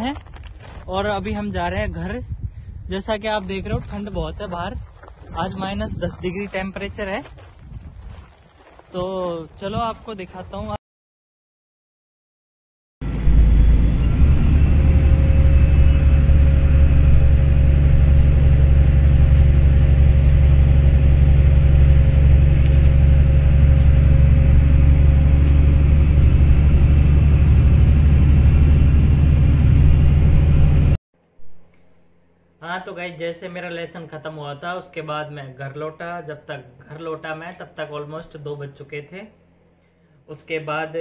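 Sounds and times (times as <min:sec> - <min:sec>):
bus engine and road rumble: 0:13.0 - 0:31.0.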